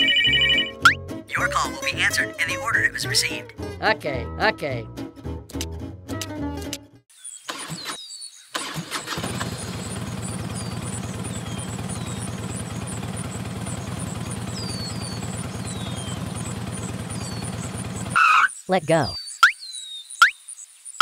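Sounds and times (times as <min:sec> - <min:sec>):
tractor engine starting and running: 0:01.3 - 0:03.1, 0:07.5 - 0:18.2
birds chirping: 0:07.1 - 0:21.0.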